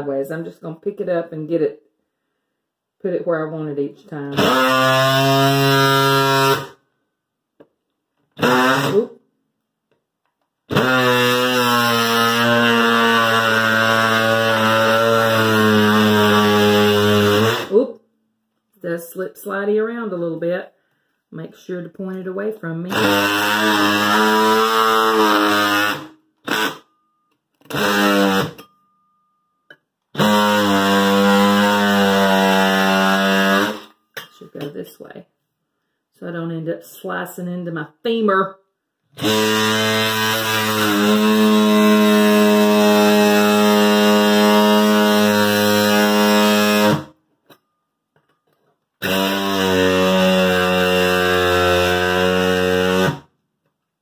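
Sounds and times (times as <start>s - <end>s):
oscillating multi-tool buzzing: 4.4s - 6.8s, 8.4s - 9.1s, 10.7s - 17.8s, 22.9s - 27.0s, 27.6s - 28.7s, 30.2s - 34.0s, 39.2s - 47.1s, 49.0s - 53.3s.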